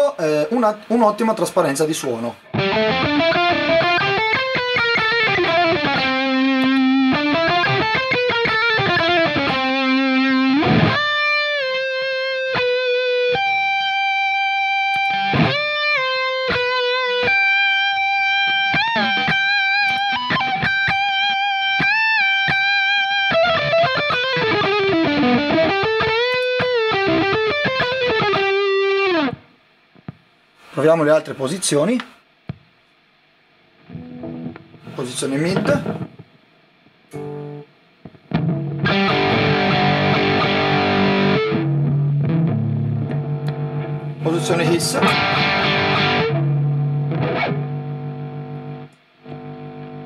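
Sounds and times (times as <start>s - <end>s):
distorted electric guitar solo: 2.4s - 29.5s, 33.8s - 36.2s, 37.1s - 50.0s.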